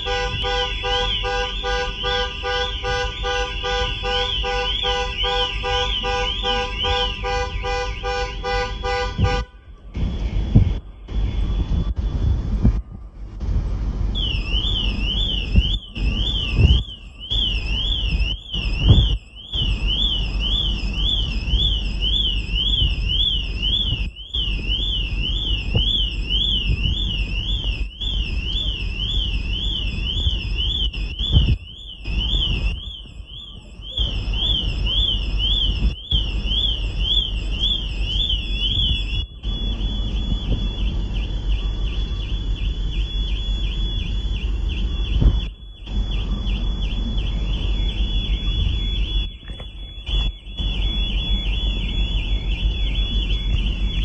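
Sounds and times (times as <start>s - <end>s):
car alarm siren: 0.0s - 54.0s
low rumble: 9.2s - 54.0s.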